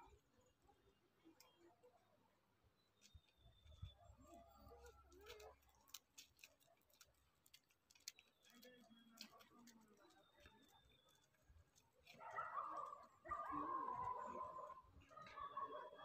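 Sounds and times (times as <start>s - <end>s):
faint distant voices: 3.7s - 16.0s
faint clicks: 4.7s - 12.2s.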